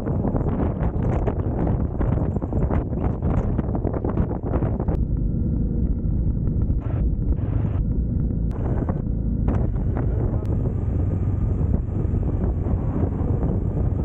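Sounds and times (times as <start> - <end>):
motorcycle engine running: 0.0 - 14.0
wind buffeting microphone: 0.0 - 14.0.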